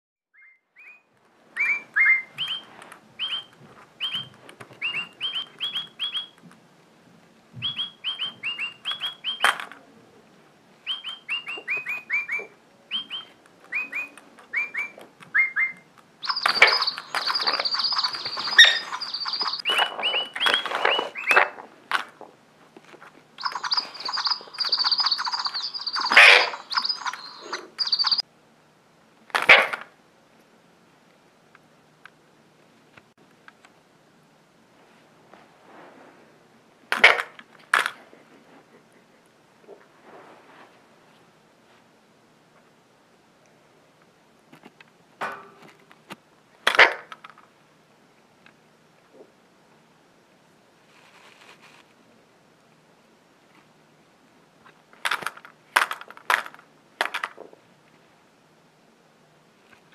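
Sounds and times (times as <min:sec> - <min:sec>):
parakeet chirping and squawking: 0:00.4 - 0:06.4, 0:07.7 - 0:09.5, 0:10.8 - 0:21.6, 0:23.3 - 0:28.2
toy birds tweeting: 0:00.4 - 0:06.4, 0:07.6 - 0:09.7, 0:10.8 - 0:21.6, 0:23.3 - 0:28.2.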